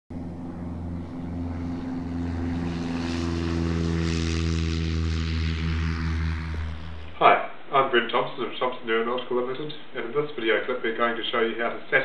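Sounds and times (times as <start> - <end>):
light aircraft engine droning: 0.1 - 7.7
propeller hiss: 0.2 - 7.4.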